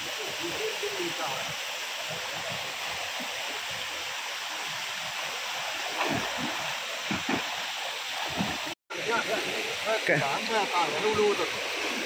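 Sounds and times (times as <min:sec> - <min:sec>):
stream rushing water: 0:00.0 - 0:12.0
splashes in water: 0:05.7 - 0:08.8.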